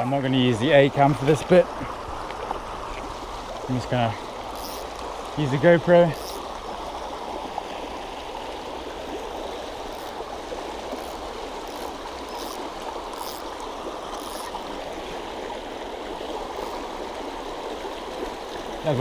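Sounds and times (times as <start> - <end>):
faint high ticks: 10.9 - 14.6.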